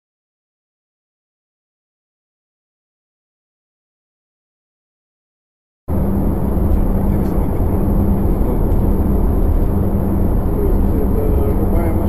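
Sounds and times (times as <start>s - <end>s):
car engine and road noise: 5.9s - 12.0s.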